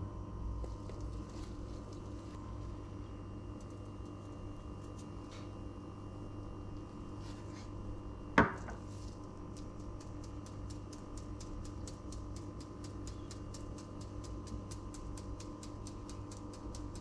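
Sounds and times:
steady hum: 0:00.0 - 0:17.0
ceramic bowl clack on countertop: 0:08.4 - 0:08.8
faint ticks: 0:09.5 - 0:17.0.

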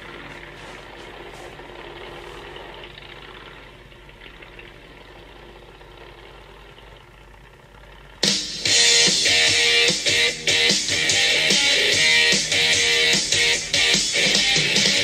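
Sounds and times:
engine idling: 0:00.0 - 0:15.0
rock music with electric guitar: 0:08.2 - 0:15.0.

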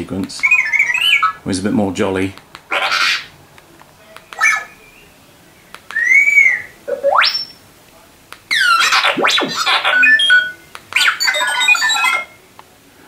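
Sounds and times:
robot beeps and whistles: 0:05.9 - 0:07.6, 0:08.5 - 0:12.4.

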